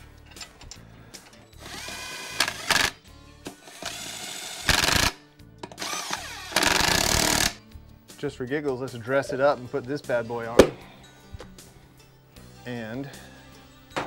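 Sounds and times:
impact wrench bursts: 1.6 - 3.0, 3.6 - 5.2, 5.8 - 7.6.

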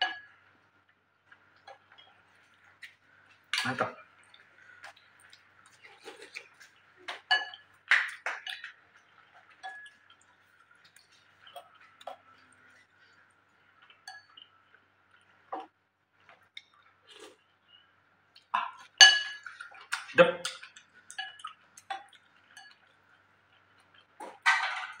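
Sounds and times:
spoon clinking on ceramic bowl: 7.2 - 8.7, 9.6 - 10.0, 14.1 - 14.4, 18.6 - 19.5.

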